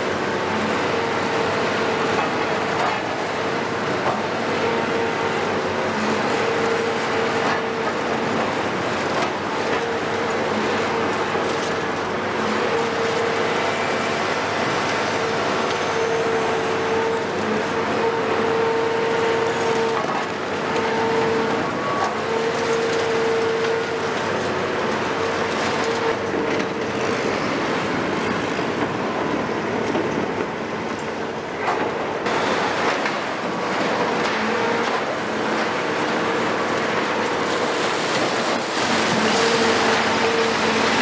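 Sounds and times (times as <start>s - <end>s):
excavator diesel engines: 0.0s - 41.0s
hydraulic whine: 0.0s - 41.0s.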